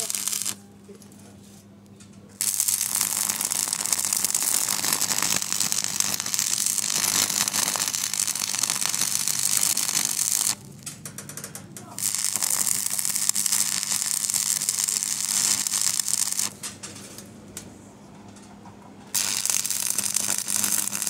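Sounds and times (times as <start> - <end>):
welding arc crackling: 0.0 - 0.6, 2.4 - 16.7, 19.1 - 21.0.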